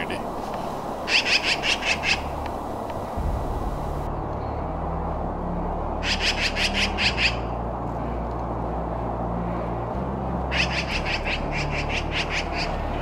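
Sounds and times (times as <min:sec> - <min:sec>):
low background noise: 0:00.0 - 0:13.0
magpie harsh rasping chatter: 0:01.1 - 0:02.3, 0:06.0 - 0:07.5, 0:10.5 - 0:13.0.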